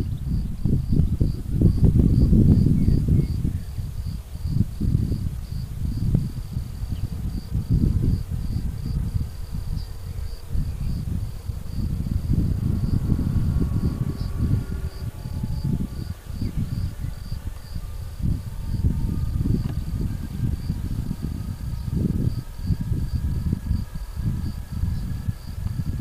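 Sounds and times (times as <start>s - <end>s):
crickets chirping: 0.0s - 26.0s
low uneven rumble: 0.0s - 26.0s.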